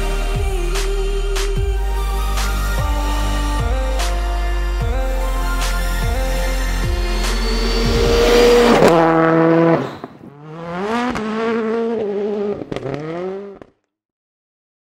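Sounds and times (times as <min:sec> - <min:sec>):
rally car engine revving: 0:00.0 - 0:13.8
sharp crack from car: 0:12.6 - 0:13.8.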